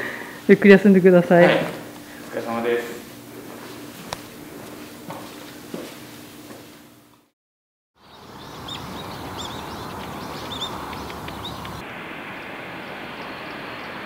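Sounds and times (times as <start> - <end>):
small birds chirping: 8.0 - 11.8
outdoor background noise: 8.0 - 14.0.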